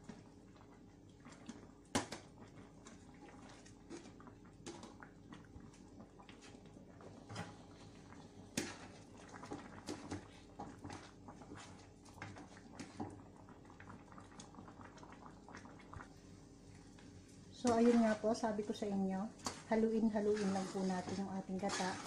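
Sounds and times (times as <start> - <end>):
spatula scraping thick rice: 20.1 - 22.0.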